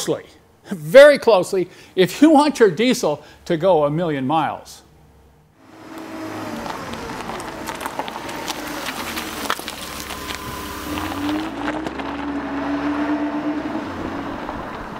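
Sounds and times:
vehicle engine running: 5.6 - 14.9.

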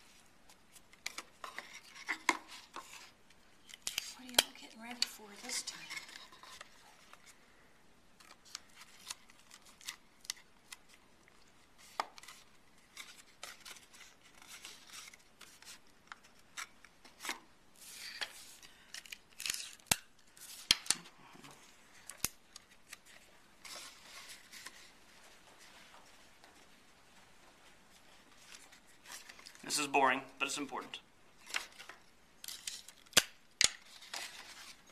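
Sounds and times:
cardstock rustling and crackling: 8.2 - 21.0, 31.4 - 34.9.

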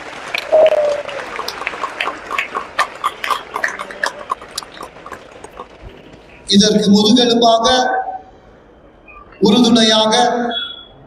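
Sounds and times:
congregation applauding: 0.0 - 7.0.

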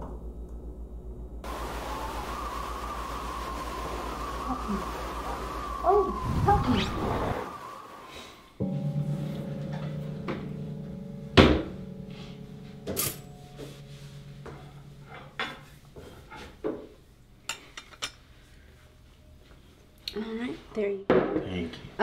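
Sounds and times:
low steady hum: 0.0 - 20.3
sharp knocks: 9.4 - 15.6.

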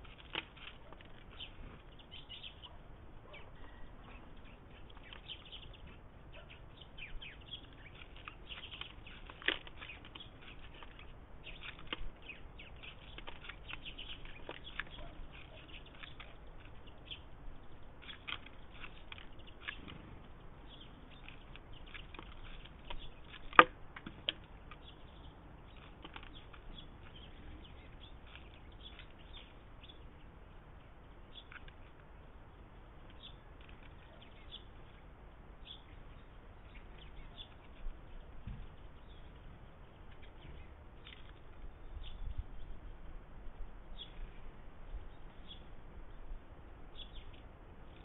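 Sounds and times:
bird pecking seeds: 0.0 - 44.3.

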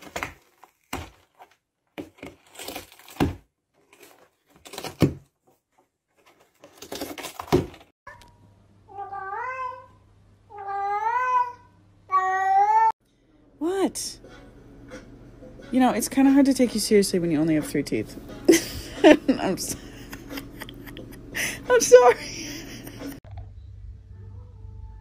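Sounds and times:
cat yowling: 8.9 - 9.9, 10.5 - 12.9
cat meowing: 8.9 - 12.9
low steady hum: 13.0 - 25.0.

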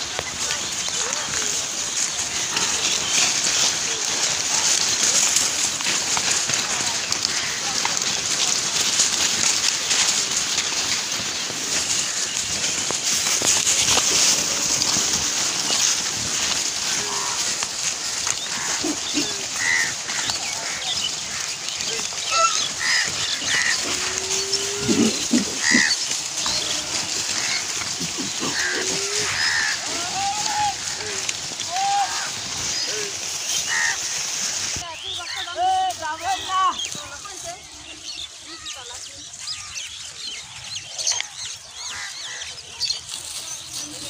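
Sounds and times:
plastic litter rustling: 0.0 - 38.8
pigs squealing and grunting: 16.8 - 33.1.

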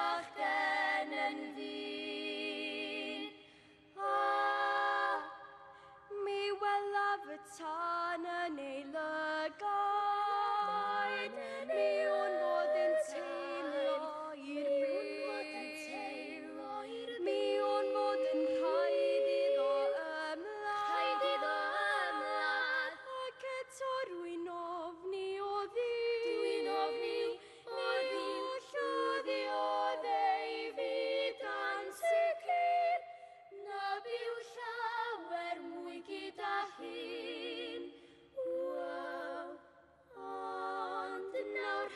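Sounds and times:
girls singing in harmony: 0.0 - 41.9.

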